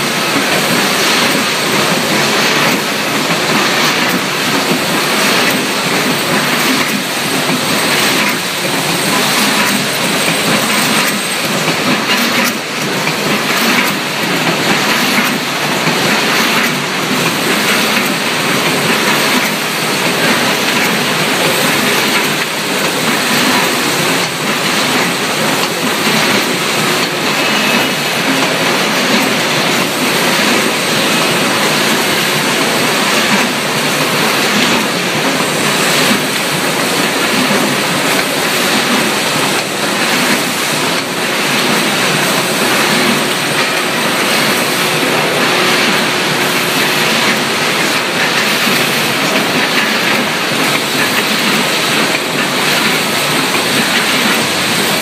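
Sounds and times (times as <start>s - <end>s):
production line machinery clatter: 0.0s - 55.0s.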